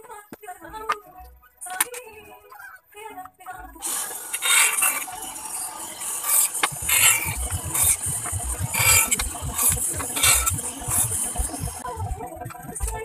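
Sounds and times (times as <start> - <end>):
band saw cutting wood: 3.8 - 11.8.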